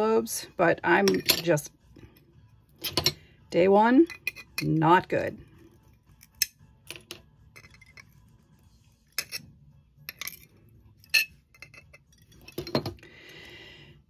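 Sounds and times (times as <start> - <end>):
glass snapping and clinking: 6.2 - 8.2, 10.1 - 13.0.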